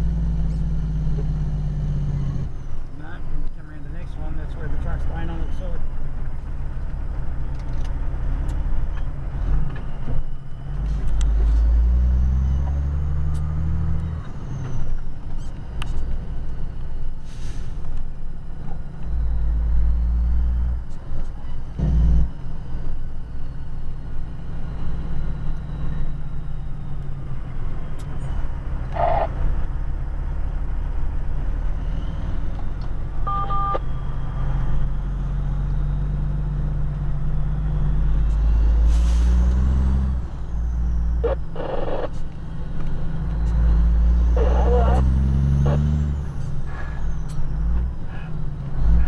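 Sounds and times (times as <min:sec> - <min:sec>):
truck engine running: 0:20.9 - 0:49.0
two-tone beep: 0:33.2 - 0:34.5.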